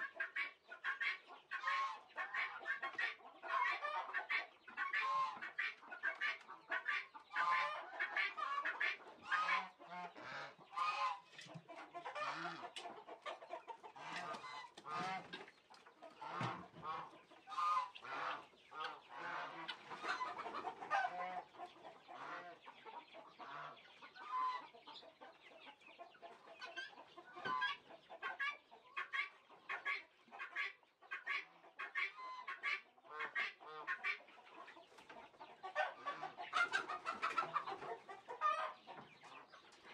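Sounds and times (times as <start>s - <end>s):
geese calling: 0.0s - 11.3s, 16.1s - 21.4s
chickens clucking: 0.0s - 39.9s.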